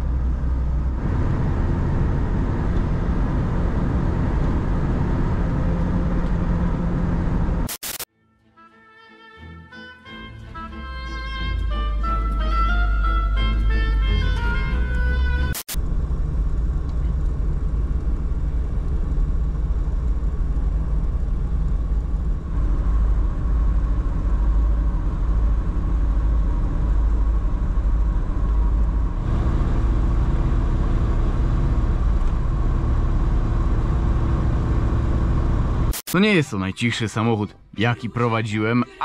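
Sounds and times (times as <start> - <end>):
car engine drone: 0.0 - 8.0, 13.4 - 36.2.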